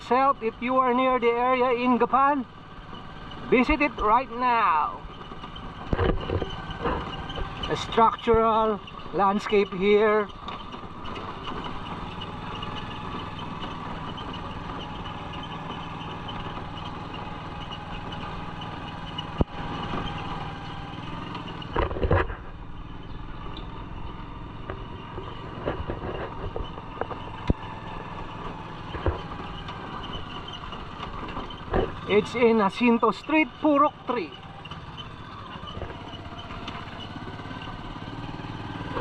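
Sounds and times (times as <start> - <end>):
motor tricycle engine running: 0.0 - 39.0
loud rattle: 5.0 - 33.7.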